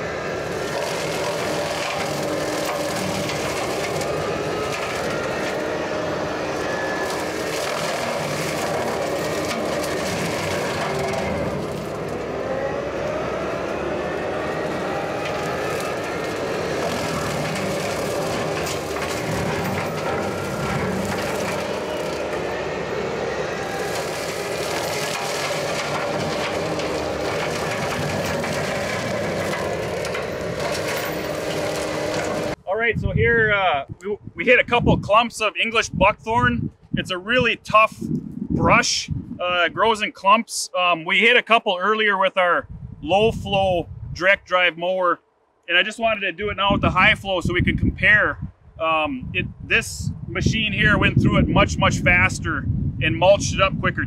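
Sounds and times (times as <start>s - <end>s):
mower crunching and cracking wood: 0.0s - 32.6s
diesel engine running under load: 0.0s - 33.6s.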